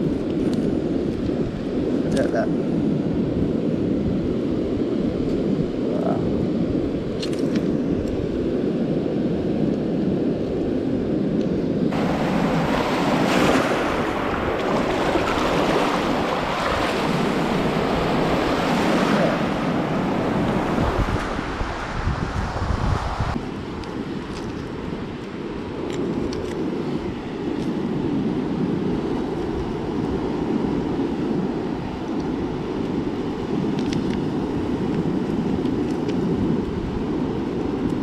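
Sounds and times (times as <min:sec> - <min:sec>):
wind buffeting microphone: 0:00.0 - 0:38.0
sea surf: 0:11.9 - 0:38.0
waves splashing around legs: 0:11.9 - 0:38.0.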